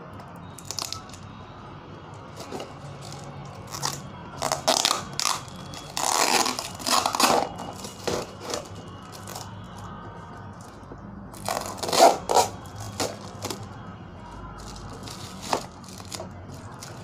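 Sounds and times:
packing tape peeling: 0:00.6 - 0:01.2, 0:02.4 - 0:09.5, 0:11.4 - 0:13.6, 0:14.6 - 0:17.0
cardboard box tearing: 0:11.4 - 0:13.2.

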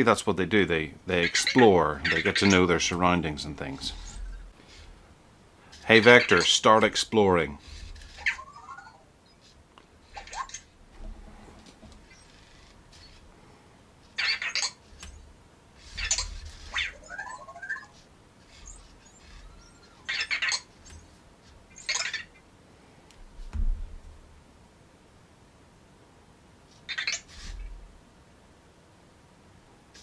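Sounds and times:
small robot motors whirring: 0:15.8 - 0:21.0.

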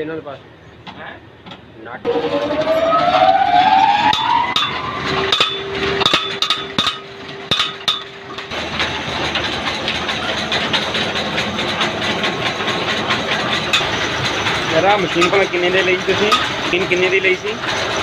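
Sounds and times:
machinery hum: 0:00.4 - 0:18.0
sharp metallic knocks: 0:04.0 - 0:18.0
rice mill rattling: 0:05.3 - 0:18.0.

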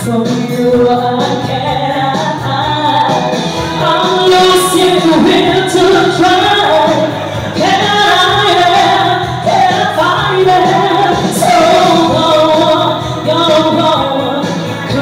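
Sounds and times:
music accompaniment: 0:00.0 - 0:15.0
woman singing into microphone: 0:00.0 - 0:15.0.

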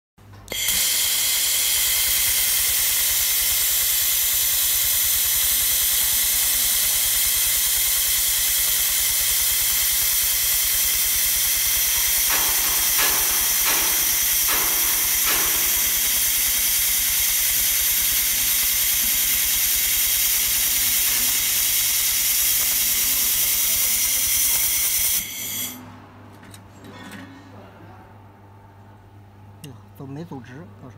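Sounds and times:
laser welder hissing: 0:00.5 - 0:25.8
sparks crackling: 0:02.2 - 0:25.8.

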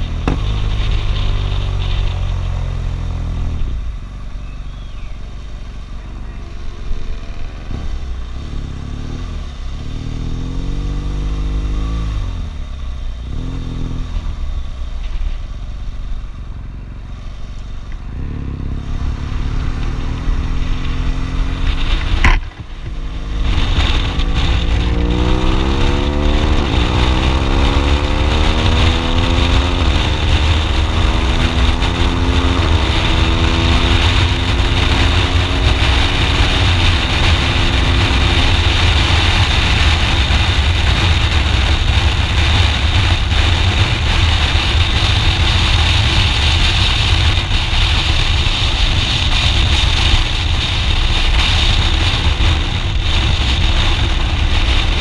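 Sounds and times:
motorcycle engine accelerating: 0:00.0 - 0:55.0
wind rush on microphone: 0:18.1 - 0:55.0.

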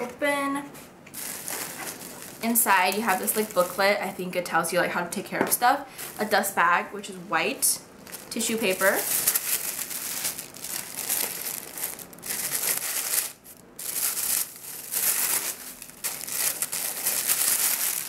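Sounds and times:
tissue paper rustling and crinkling: 0:01.2 - 0:04.0, 0:08.0 - 0:18.0.

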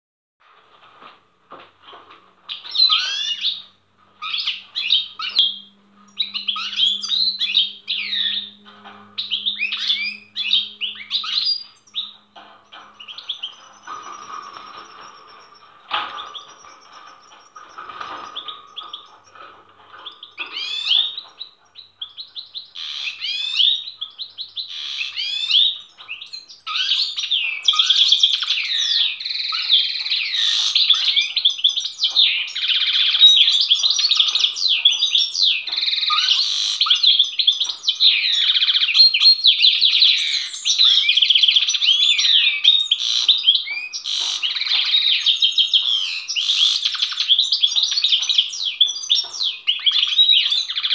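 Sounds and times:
goldfinch singing: 0:02.5 - 0:19.4, 0:20.0 - 0:50.9.

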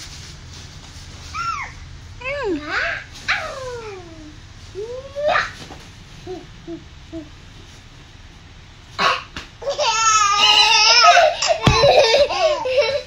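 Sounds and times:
thump: 0:11.6 - 0:12.1.

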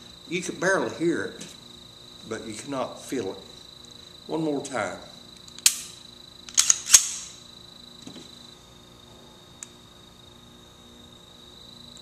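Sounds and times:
pistol action clicks: 0:05.4 - 0:07.4.

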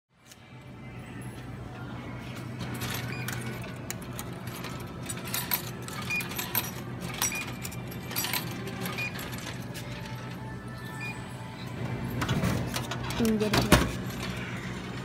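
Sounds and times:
coins clinking in coin slot: 0:02.6 - 0:11.2, 0:12.1 - 0:15.0.

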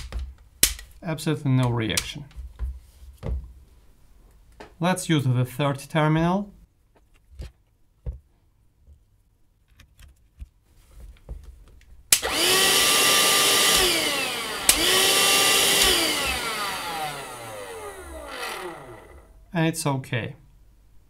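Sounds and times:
handheld vacuum cleaner motor running: 0:12.2 - 0:19.3.

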